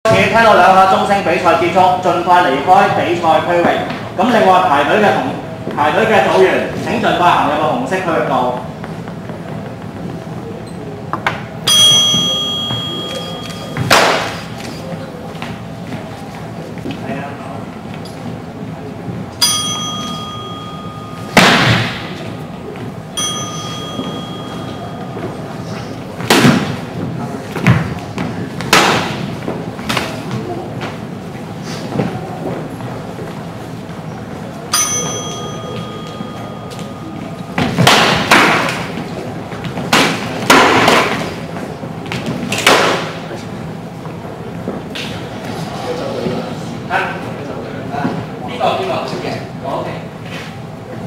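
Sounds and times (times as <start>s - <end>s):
signal bell ringing: 11.7s - 13.9s, 19.4s - 22.5s, 23.1s - 26.0s, 34.7s - 37.8s
practice swords clashing: 11.7s - 14.6s, 19.4s - 22.2s, 34.8s - 39.0s
loud thump: 21.3s - 22.1s.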